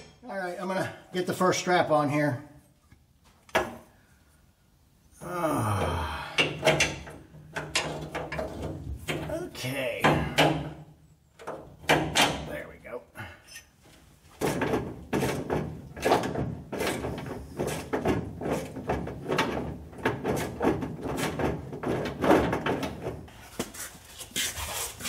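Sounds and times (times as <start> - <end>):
metal strap clunking and rattling: 3.3 - 3.9, 6.4 - 9.4, 10.0 - 12.5, 13.4 - 23.6.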